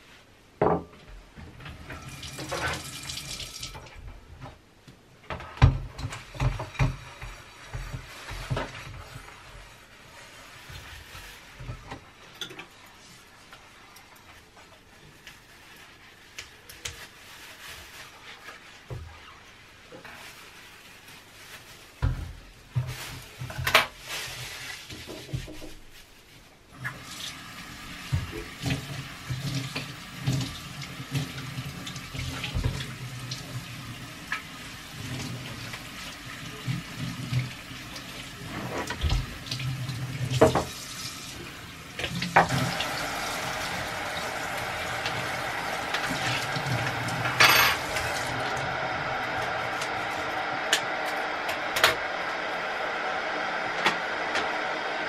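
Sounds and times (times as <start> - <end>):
water running from tap: 1.8 - 4.0, 26.8 - 50.3
dishes and utensils clinking: 47.2 - 48.2.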